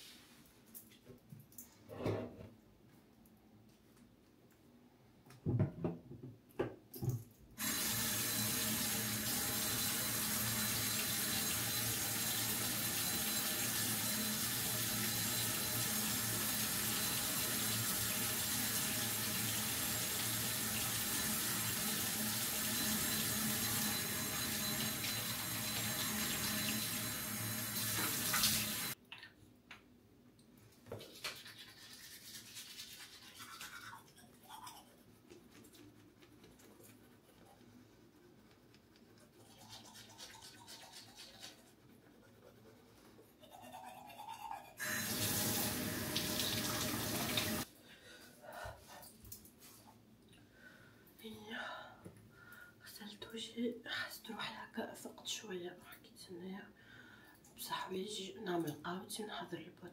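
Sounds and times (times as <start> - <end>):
sink tap running: 7.6 - 29.0, 44.8 - 47.6.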